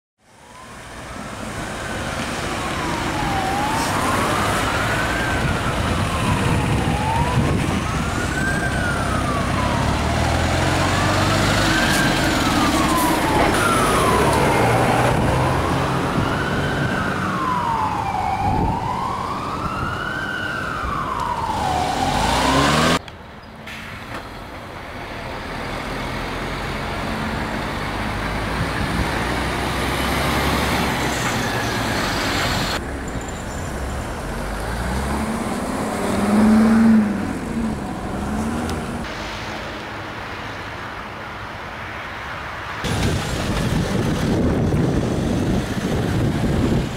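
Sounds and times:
road traffic: 0.2s - 46.9s
fire engine siren wailing: 0.3s - 23.0s, 34.0s - 39.1s, 42.8s - 46.9s.

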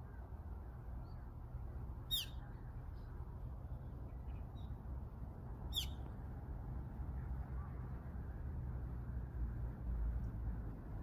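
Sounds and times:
low steady rumble: 0.0s - 11.0s
faint bird chirps: 2.0s - 3.2s, 5.7s - 6.0s
bird shrill downward calls: 2.1s - 2.4s, 5.7s - 6.0s.

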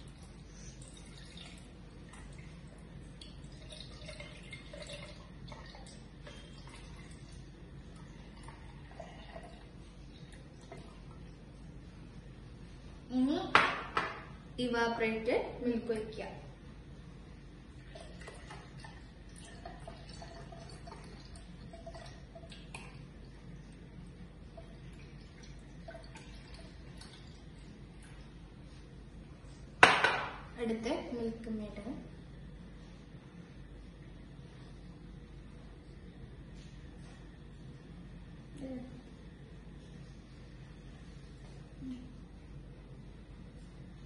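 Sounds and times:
milk pouring and dripping: 0.0s - 11.9s, 17.7s - 29.6s
steady low hum: 0.0s - 44.0s.

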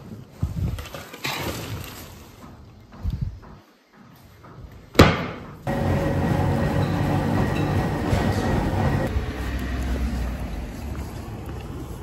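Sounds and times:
treadmill motor and belt: 5.6s - 9.4s.

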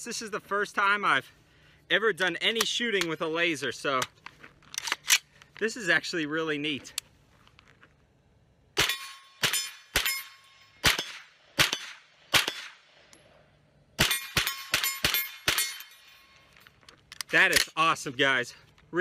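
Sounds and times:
rifle shots: 8.8s - 12.9s, 14.0s - 15.9s
steel plates ringing: 14.1s - 16.5s.

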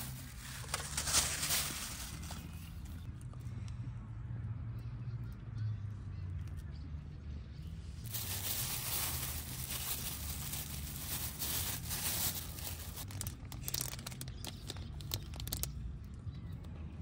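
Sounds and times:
plastic packaging crinkling: 0.0s - 2.7s, 8.1s - 15.7s
plastic crackles: 0.0s - 3.0s, 8.0s - 15.8s.

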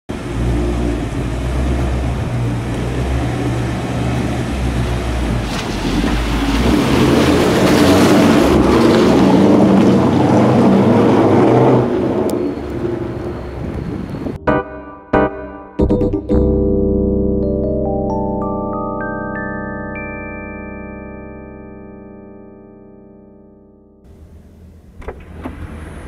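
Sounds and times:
wind noise on microphone: 13.0s - 14.5s.

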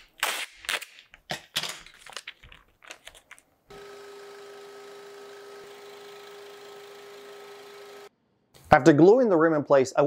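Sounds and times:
hands handling small items: 0.6s - 3.6s
scroll saw humming: 3.7s - 8.1s.

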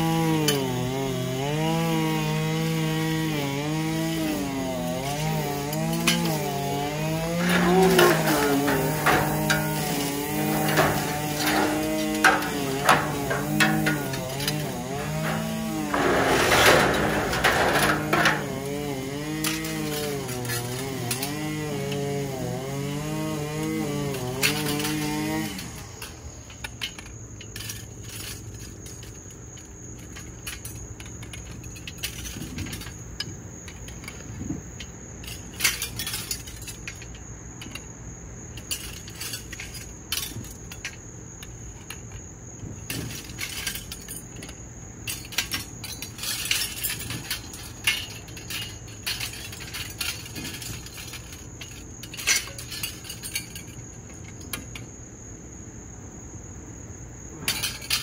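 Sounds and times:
copper pipes clinking: 5.6s - 21.4s.

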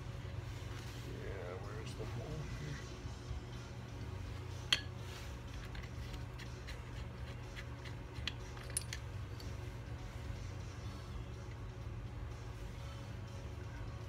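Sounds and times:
steady low hum: 0.0s - 14.0s
small metal clicks: 5.6s - 9.6s.

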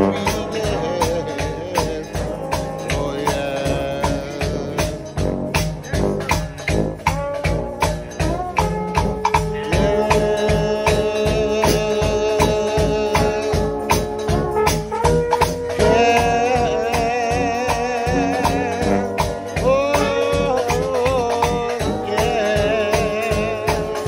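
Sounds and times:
drums and cymbals beat: 0.0s - 24.0s
trombones and trumpets playing: 0.0s - 24.0s.

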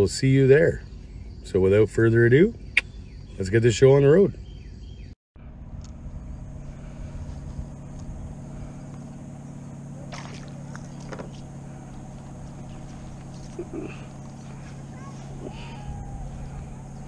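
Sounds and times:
low motor hum: 0.0s - 17.0s
low rumble: 5.4s - 17.0s
fish splashing at surface: 10.1s - 11.4s.

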